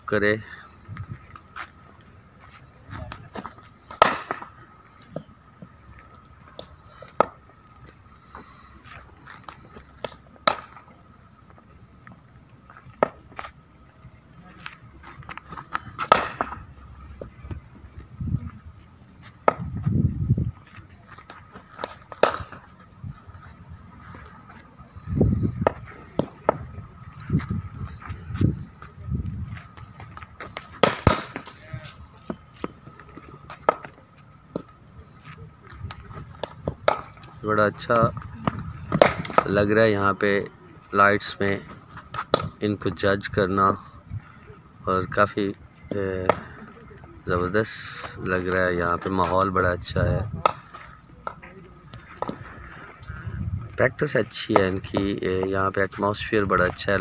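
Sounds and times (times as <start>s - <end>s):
balls landing: 2.9s - 5.3s, 9.2s - 11.0s, 15.0s - 17.6s, 21.1s - 22.8s, 25.6s - 27.6s, 29.5s - 34.8s, 35.8s - 39.7s, 42.0s - 42.6s, 49.0s - 53.0s
ball hitting cricket bat: 3.4s - 5.2s, 10.0s - 10.8s, 15.6s - 17.3s, 19.4s - 19.7s, 21.7s - 22.7s, 25.6s - 26.7s, 30.4s - 31.6s, 36.3s - 37.3s, 38.3s - 39.6s, 42.1s - 42.6s.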